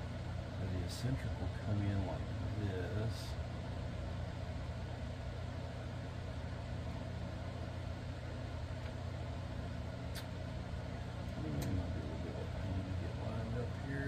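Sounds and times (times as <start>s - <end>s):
steady low hum: 0.0s - 14.0s
light clicks: 10.1s - 10.4s.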